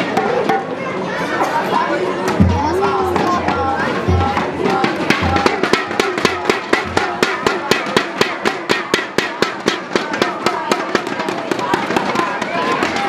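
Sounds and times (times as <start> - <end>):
supporters chanting: 1.4 - 13.0
fast drumming: 2.4 - 13.0.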